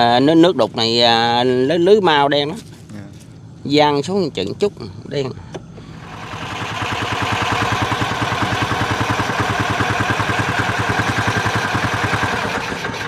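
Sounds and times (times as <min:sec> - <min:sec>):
boat engine puttering: 0:05.3 - 0:13.0.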